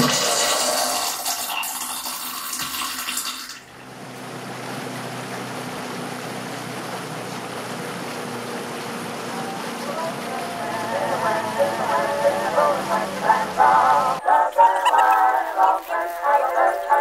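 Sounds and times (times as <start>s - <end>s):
rain on a lake: 0.0s - 14.3s, 14.9s - 17.0s.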